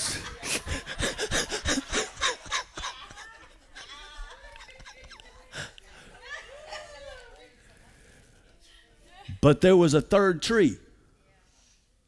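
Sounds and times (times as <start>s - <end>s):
people laughing: 0.0s - 8.1s
faint voices: 0.0s - 9.2s.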